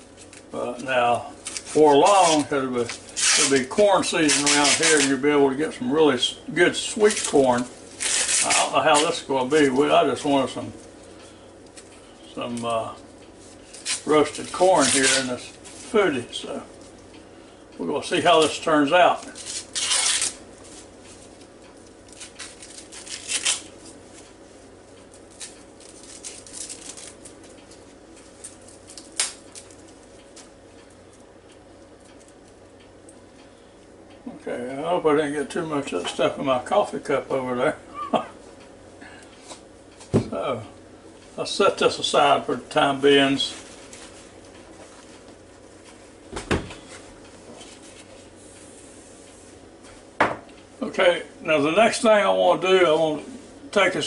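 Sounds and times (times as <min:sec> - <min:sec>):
corn husks tearing and rustling: 0:00.2 - 0:05.2, 0:06.7 - 0:10.9, 0:12.4 - 0:16.5, 0:18.4 - 0:24.2, 0:25.1 - 0:30.6.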